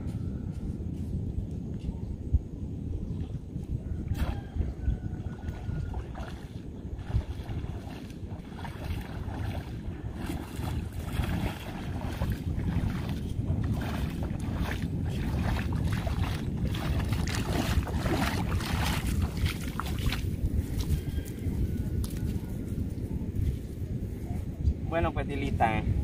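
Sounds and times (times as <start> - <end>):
wind buffeting microphone: 0.0 - 26.0
legs wading through shallow water: 3.1 - 22.5.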